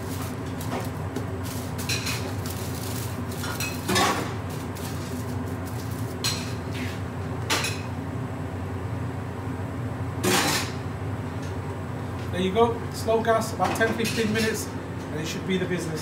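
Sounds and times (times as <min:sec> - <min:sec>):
foil crinkling: 0:00.0 - 0:06.2
steady low hum: 0:00.0 - 0:16.0.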